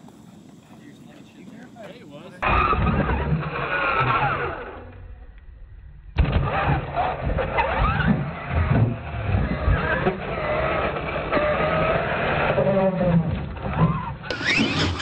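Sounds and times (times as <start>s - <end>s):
toy truck motor whine: 2.4s - 5.0s, 6.4s - 13.0s, 13.7s - 15.0s.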